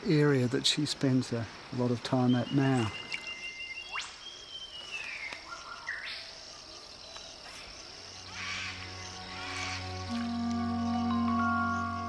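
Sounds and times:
insects droning: 0.0s - 12.0s
whistled bird calls: 2.2s - 6.2s
soft music with low notes: 8.2s - 12.0s.

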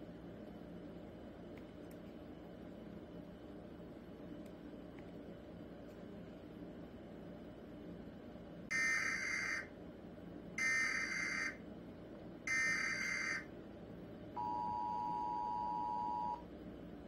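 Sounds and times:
two-tone attention signal: 14.4s - 16.4s.

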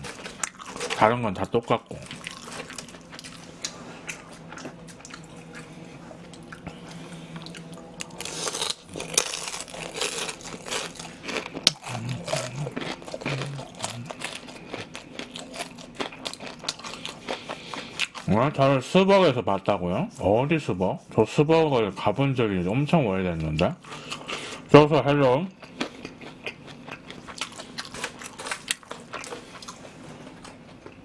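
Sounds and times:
crunching fried food: 0.0s - 5.6s, 7.4s - 18.4s, 25.6s - 31.0s
wet mouth sounds chewing: 1.9s - 18.3s.

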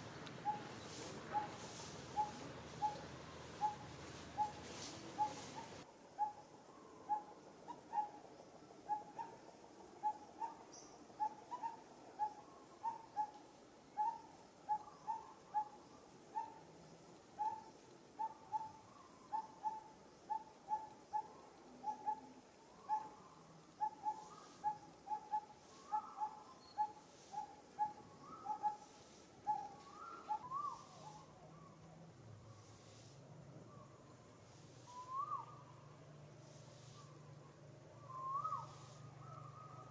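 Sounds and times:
other bird calls: 0.0s - 6.4s, 17.4s - 31.9s, 34.8s - 35.8s, 36.4s - 39.9s.

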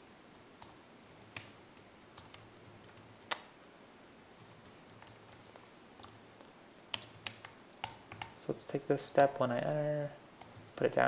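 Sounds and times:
keyboard typing: 0.3s - 3.5s, 4.4s - 6.2s, 6.9s - 8.4s, 9.2s - 11.0s.

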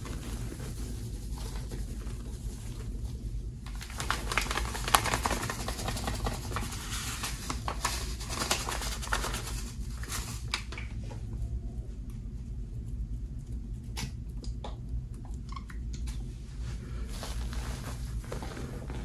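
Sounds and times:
powder pouring with crackles: 3.7s - 10.5s.

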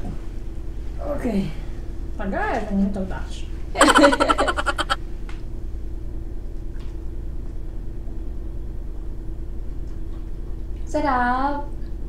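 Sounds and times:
people laughing: 3.8s - 5.0s.

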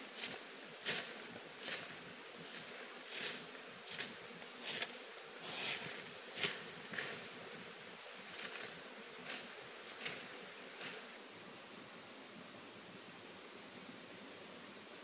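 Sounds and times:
stick sweeping dry leaves: 0.0s - 11.2s
insect buzz: 0.0s - 15.0s.

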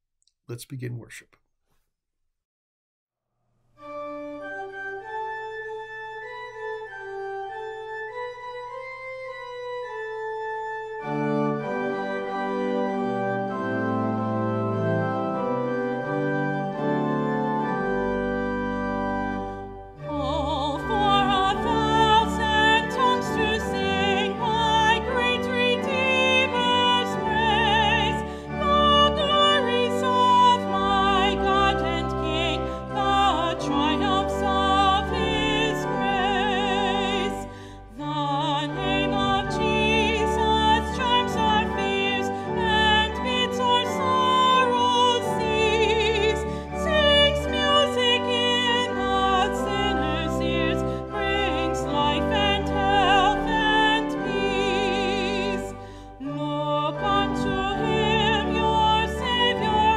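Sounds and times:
church organ playing a hymn: 3.8s - 59.9s
woman singing with vibrato: 20.1s - 59.9s.

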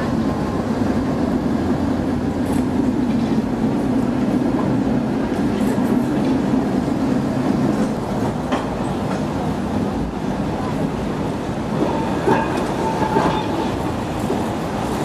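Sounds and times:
tram wheels clacking over joints: 11.6s - 15.0s.

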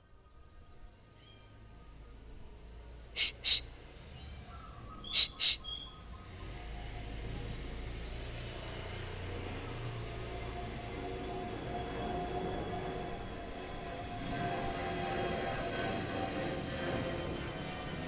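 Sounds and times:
short high bird calls: 3.2s - 3.7s, 4.5s - 6.0s.

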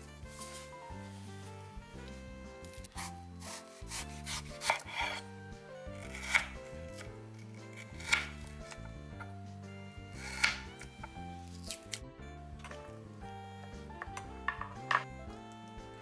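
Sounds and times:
soft background music: 0.0s - 16.0s
metal cutters cutting apple: 2.0s - 9.4s, 10.1s - 12.0s, 13.9s - 15.9s.

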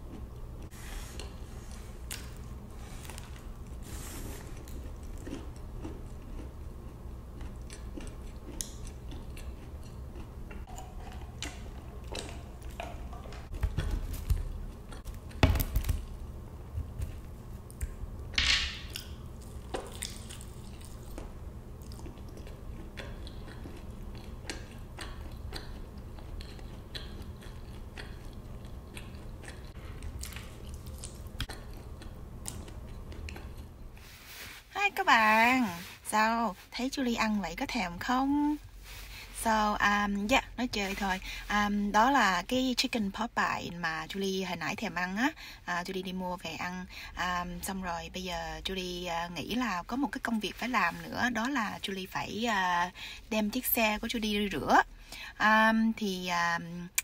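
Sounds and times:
chewing and biting food: 4.4s - 16.2s, 18.9s - 34.0s.

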